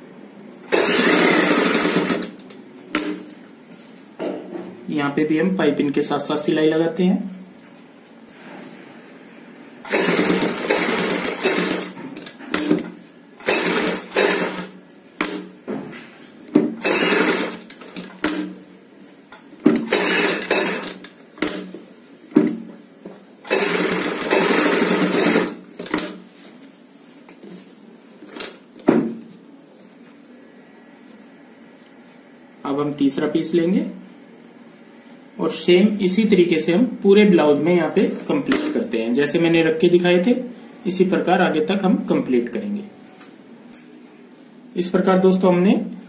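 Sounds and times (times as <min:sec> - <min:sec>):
sewing machine stitching: 0:00.7 - 0:03.1, 0:09.8 - 0:15.5, 0:16.5 - 0:18.6, 0:19.7 - 0:21.7, 0:23.4 - 0:26.2.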